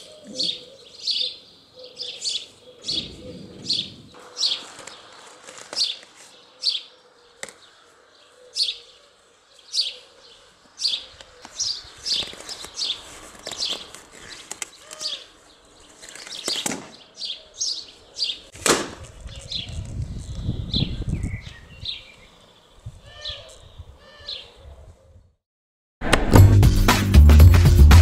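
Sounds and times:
bird chirping: 0:00.0 - 0:18.5
sharp crack: 0:16.4 - 0:17.0, 0:18.6 - 0:19.2.

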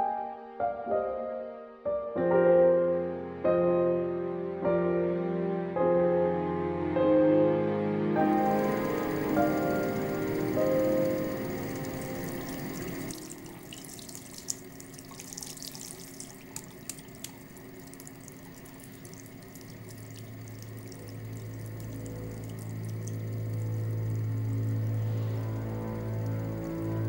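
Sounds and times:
low steady hum: 0:08.2 - 0:27.0
tap water running into sink: 0:08.2 - 0:27.0.

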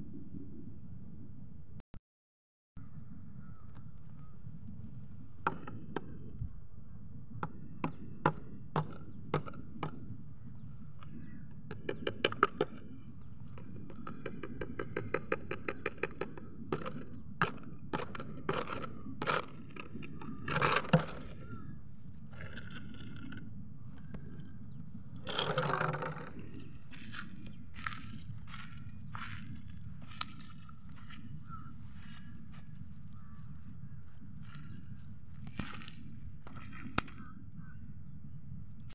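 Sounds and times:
plastic bottle crackling and clicking: 0:11.6 - 0:21.6, 0:25.2 - 0:27.2
plastic bottle crunch: 0:13.5 - 0:21.6, 0:22.3 - 0:23.4, 0:25.2 - 0:31.3, 0:35.4 - 0:37.3.

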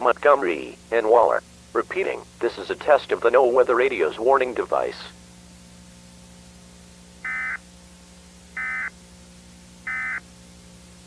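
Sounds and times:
steady low hum: 0:00.0 - 0:11.0
warbling data tone bursts: 0:07.2 - 0:07.6, 0:08.6 - 0:08.9, 0:09.8 - 0:10.2.

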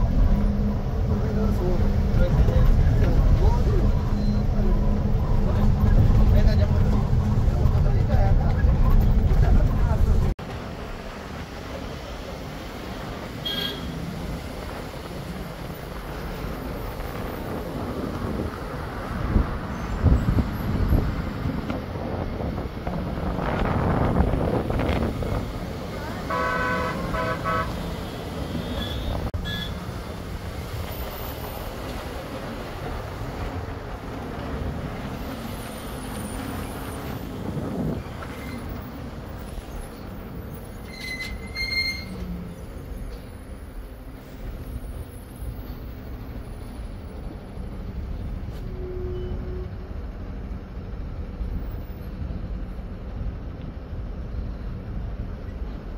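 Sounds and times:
truck driving on highway: 0:00.0 - 0:55.9
vehicle horn toots: 0:13.4 - 0:14.0, 0:26.3 - 0:29.8, 0:48.7 - 0:49.8.

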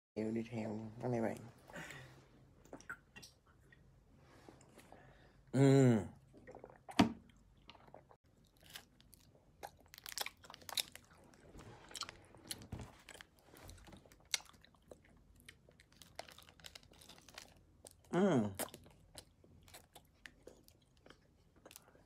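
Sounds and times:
chewing close to microphone: 0:07.7 - 0:22.0
plastic wrapper crinkling: 0:15.8 - 0:17.6.

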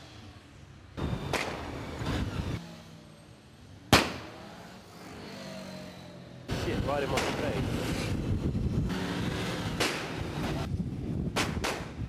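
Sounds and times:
motorcycle engine: 0:00.0 - 0:11.3.

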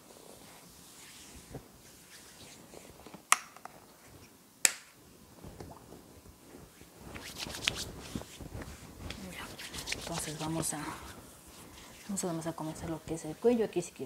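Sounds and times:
oily hands rubbing skin: 0:00.0 - 0:03.2, 0:05.4 - 0:14.0
sharp snaps: 0:04.6 - 0:05.0.

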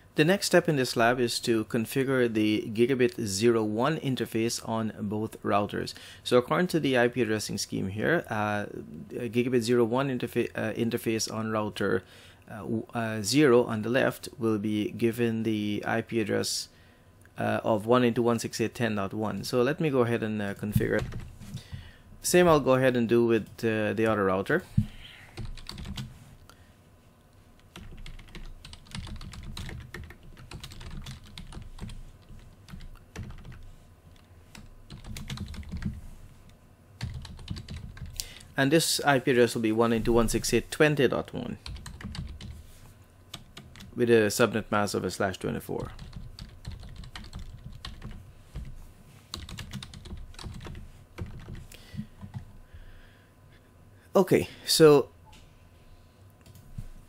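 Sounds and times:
computer keyboard typing: 0:20.7 - 0:21.3, 0:25.4 - 0:26.1, 0:27.6 - 0:36.0, 0:37.0 - 0:38.2, 0:41.6 - 0:42.6, 0:43.3 - 0:44.0, 0:45.8 - 0:48.7, 0:49.3 - 0:52.5.

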